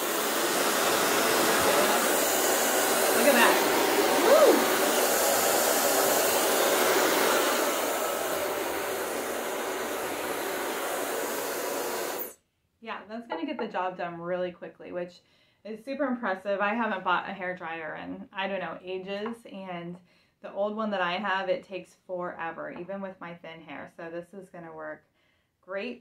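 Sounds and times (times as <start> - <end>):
hair dryer blowing air: 0.0 - 12.4.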